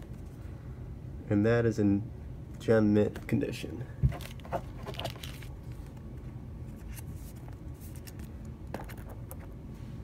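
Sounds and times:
room hum: 0.0 - 10.0
card rustling: 4.0 - 9.6.

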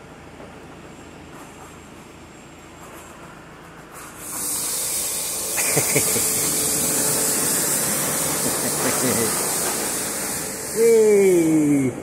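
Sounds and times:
short pitched sliding sounds: 3.9 - 12.0
spraying hiss: 4.0 - 12.0.

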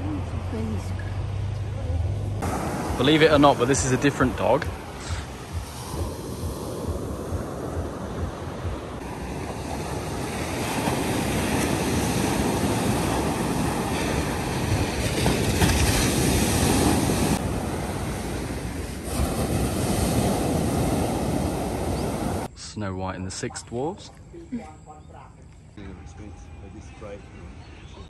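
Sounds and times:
sea waves washing onto beach: 2.4 - 22.5
wind rumbling on microphone: 4.3 - 22.5.

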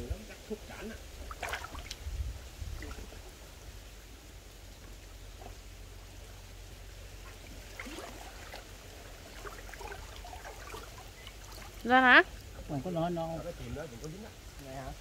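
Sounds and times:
steady low rumble: 0.0 - 10.2
faint distant calls: 0.0 - 15.0
water trickling and sloshing: 0.1 - 15.0.

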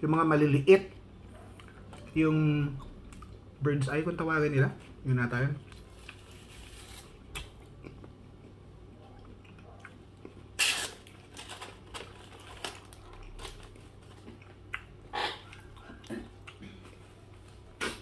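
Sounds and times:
man chewing: 1.2 - 2.2, 5.6 - 18.0.

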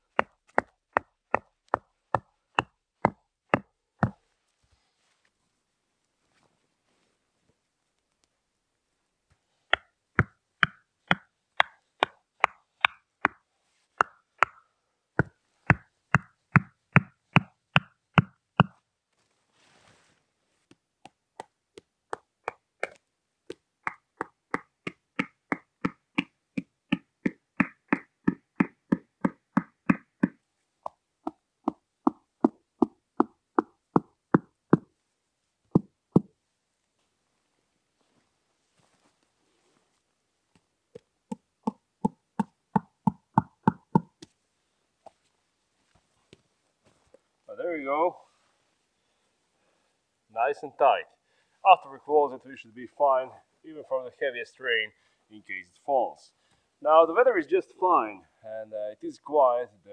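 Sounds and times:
tent pegs being hammered: 0.0 - 4.2, 9.7 - 18.8, 20.7 - 34.9, 35.7 - 36.3, 40.6 - 44.3.

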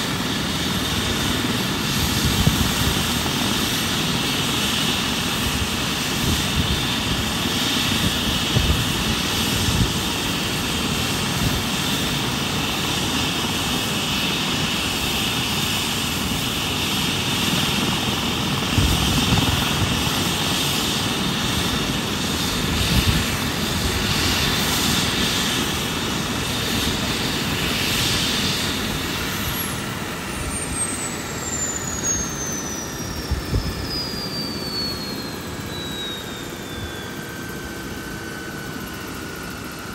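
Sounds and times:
helicopter turbine and rotor: 0.0 - 39.9
turbine winding down: 0.1 - 39.9.

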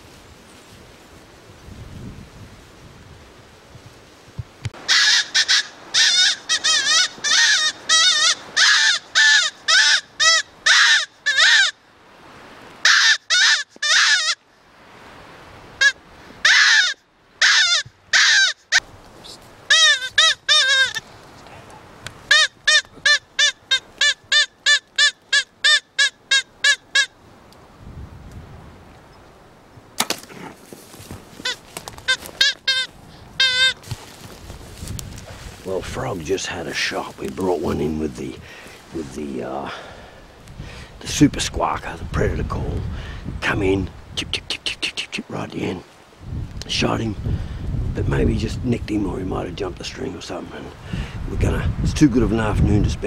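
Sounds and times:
predator call squawks: 4.8 - 11.8, 12.8 - 14.4, 15.8 - 21.0, 22.3 - 27.2, 31.4 - 33.9.

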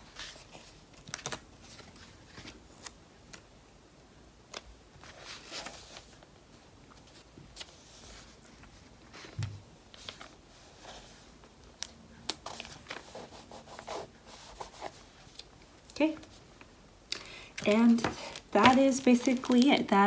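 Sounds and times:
paper sticker sheet rustling: 6.9 - 15.5, 17.6 - 19.9.

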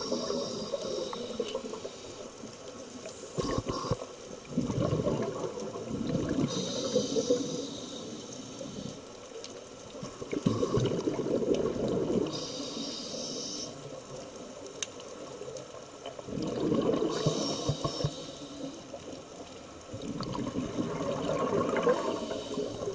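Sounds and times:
exhaled bubbles underwater: 0.0 - 1.9, 3.4 - 7.9, 10.0 - 13.4, 15.2 - 19.1, 19.8 - 22.9
regulator inhale hiss: 0.0 - 2.5, 3.1 - 4.2, 6.4 - 9.2, 12.2 - 14.4, 17.1 - 19.0, 21.9 - 22.9.

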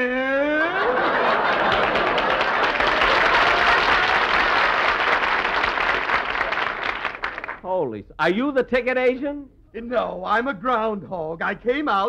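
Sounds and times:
audience laughing and applauding: 0.2 - 7.6.

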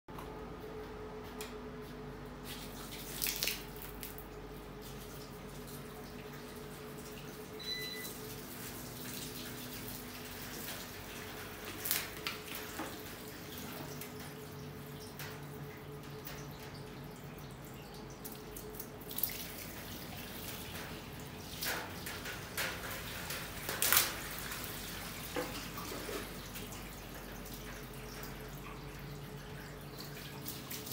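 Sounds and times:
water splashing on metal: 2.4 - 4.2, 8.2 - 30.9.

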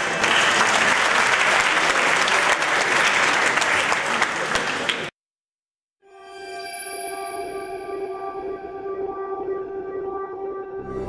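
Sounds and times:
audience applauding: 0.0 - 5.1.

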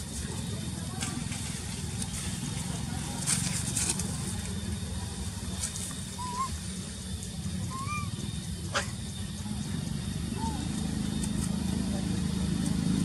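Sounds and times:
wavering animal calls: 6.0 - 6.8, 7.5 - 11.3.

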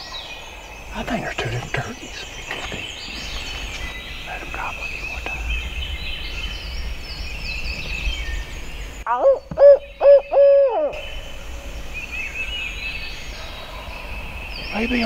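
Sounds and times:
songbirds chirping: 0.0 - 15.0
owl hooting: 9.1 - 15.0.

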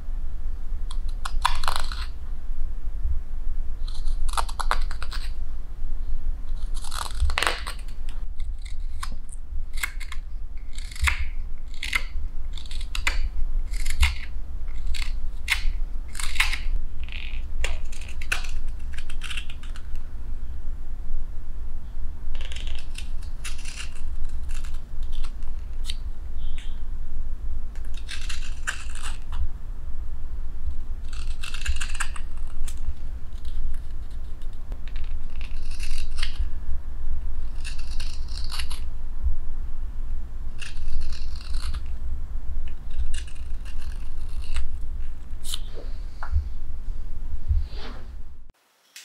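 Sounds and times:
steady low rumble: 0.0 - 48.6
knife carving wood: 0.9 - 2.2, 3.8 - 5.4, 6.5 - 20.0, 22.4 - 26.8, 27.7 - 29.4, 31.0 - 36.5, 37.4 - 38.9, 40.5 - 41.9, 42.6 - 45.8.

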